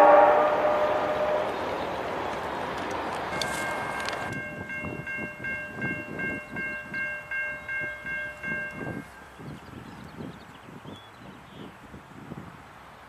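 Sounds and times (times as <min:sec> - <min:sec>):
railroad crossing bell ringing: 0:03.2 - 0:09.3.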